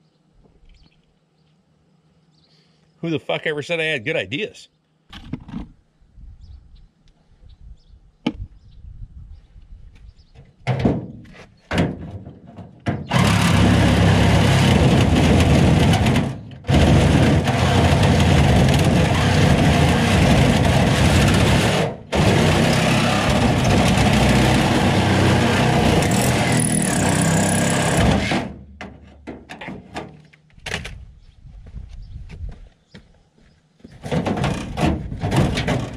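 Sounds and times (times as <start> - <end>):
reciprocating saw cutting metal: 13.1 - 28.6.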